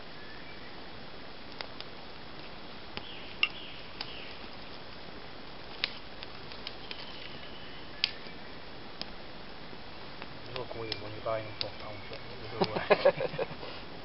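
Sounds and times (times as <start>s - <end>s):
campfire crackling: 0.0s - 14.0s
fire hissing: 0.0s - 14.0s
fire pops: 1.3s - 13.8s.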